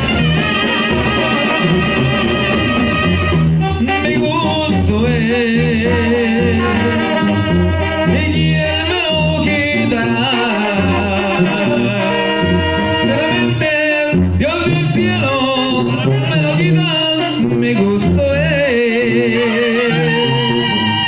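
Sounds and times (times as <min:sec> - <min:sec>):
drums: 0:00.0 - 0:05.5
clarinet: 0:00.0 - 0:14.5, 0:15.2 - 0:21.0
trombones: 0:00.0 - 0:21.0
trumpets: 0:00.0 - 0:21.0
tuba bass line: 0:00.0 - 0:21.0.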